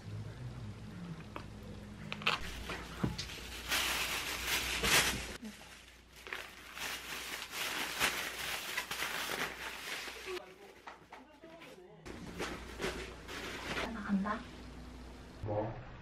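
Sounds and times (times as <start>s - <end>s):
plastic bag crinkling: 2.1s - 10.7s.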